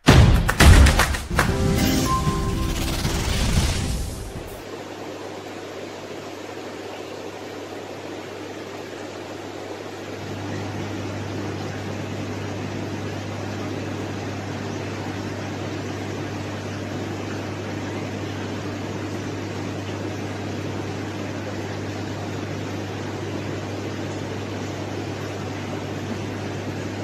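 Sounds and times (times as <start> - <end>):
steady mechanical hum: 0.0 - 27.0.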